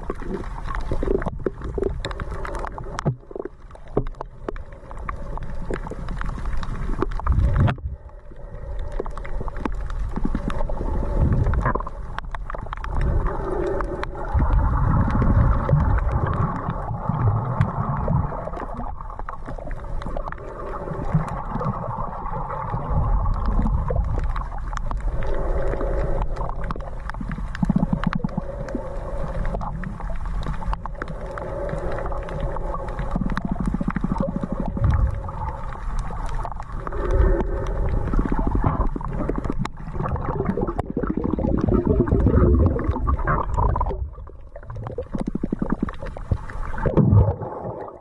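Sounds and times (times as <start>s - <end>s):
underwater rumble and sloshing: 0.0s - 48.0s.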